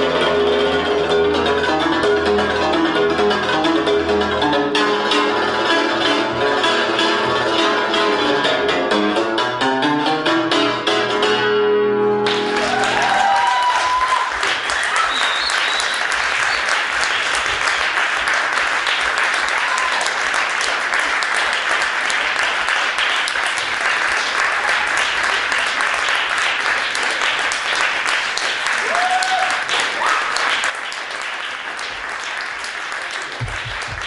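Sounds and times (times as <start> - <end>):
audience applause: 12.2 - 34.0.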